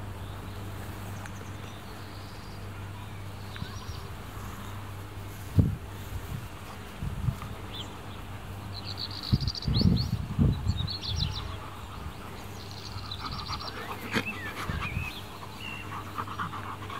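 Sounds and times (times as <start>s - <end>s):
dog panting: 11.4s - 16.9s.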